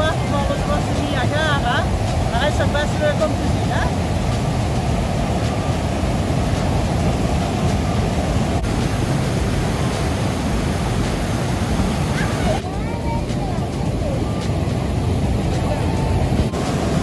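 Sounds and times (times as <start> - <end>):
white water rushing: 0.0 - 17.0.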